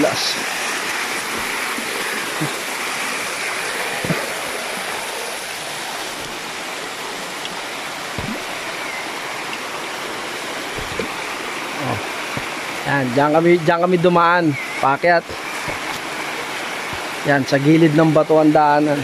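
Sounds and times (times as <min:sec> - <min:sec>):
stream rushing over rock: 0:00.0 - 0:19.0
soft low thumps: 0:08.1 - 0:09.2, 0:10.6 - 0:12.8.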